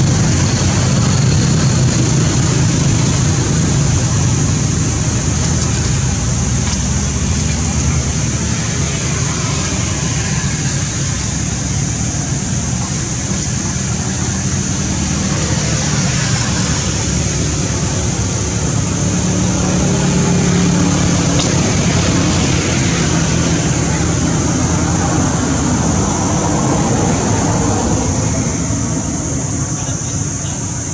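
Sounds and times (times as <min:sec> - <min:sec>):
constant high hiss: 0:00.0 - 0:30.9.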